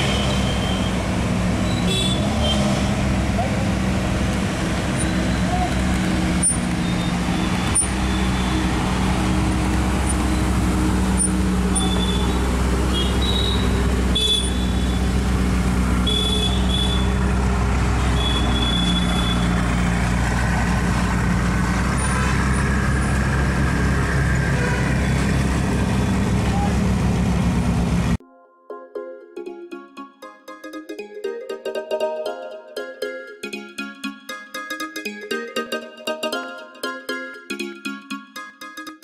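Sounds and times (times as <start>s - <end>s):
car engines idling: 0.0s - 28.2s
short high squeaks: 4.9s - 8.7s, 10.0s - 15.0s.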